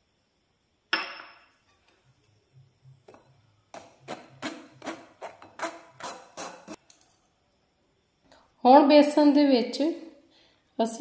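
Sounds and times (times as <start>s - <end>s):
spoon scraping a mesh sieve: 3.8s - 6.8s.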